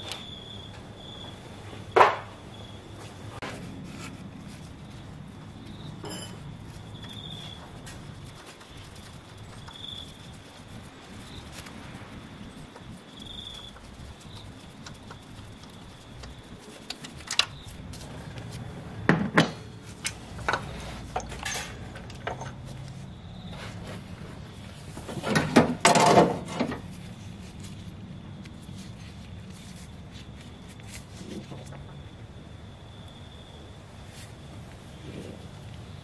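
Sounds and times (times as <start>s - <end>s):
metal clinks and knocks: 6.0s - 6.6s, 19.1s - 22.7s.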